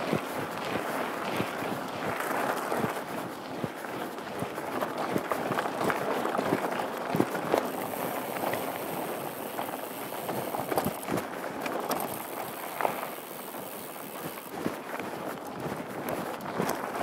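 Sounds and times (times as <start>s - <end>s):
bike knocking and rattling on rocks: 3.8s - 17.0s
tyres crunching on loose stones: 4.9s - 17.0s.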